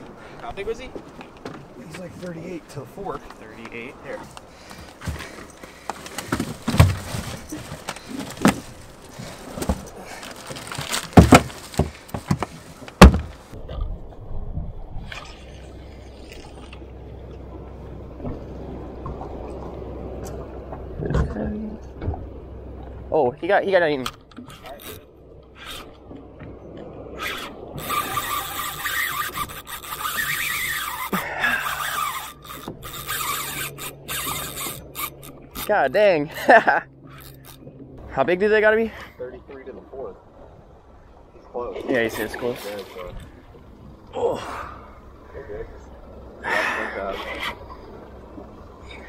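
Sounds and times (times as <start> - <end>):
knocks and thumps in fish box: 5.9 - 8.8, 9.5 - 13.4
spinning reel being cranked: 27.2 - 35.7.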